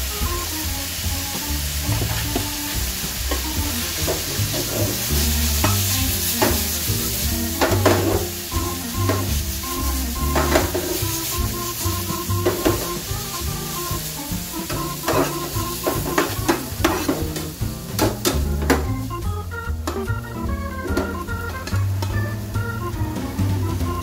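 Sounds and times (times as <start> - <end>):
vegetables sizzling in a pan: 0.0 - 24.0
metal spatula scraping a pan: 4.0 - 8.4, 14.7 - 17.5.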